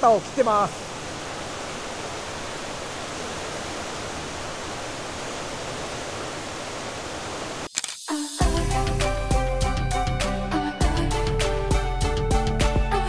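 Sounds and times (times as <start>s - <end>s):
waterfall rushing: 0.0s - 9.2s.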